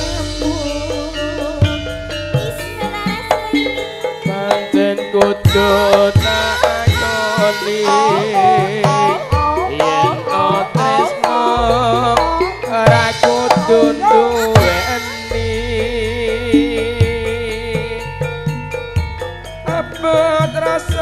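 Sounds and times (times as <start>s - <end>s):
metallophone and kettle-gong tones: 0.0s - 11.6s, 13.9s - 16.6s
drum strokes: 0.0s - 21.0s
woman singing: 2.4s - 4.8s, 6.8s - 15.3s.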